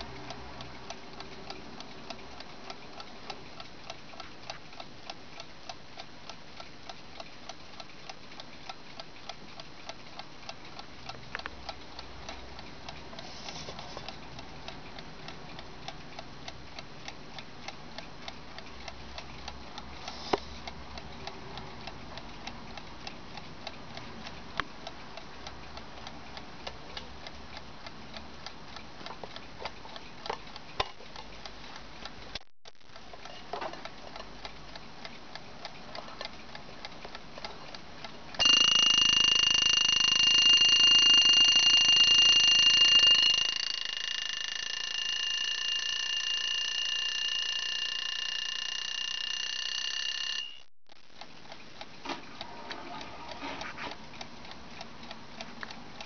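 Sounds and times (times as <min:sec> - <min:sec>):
mechanical alarm clock ticking: 0:00.0 - 0:52.5, 0:53.3 - 0:56.0
alarm clock ringing: 0:38.4 - 0:50.7
alarm shut-off button press: 0:38.4 - 0:50.7.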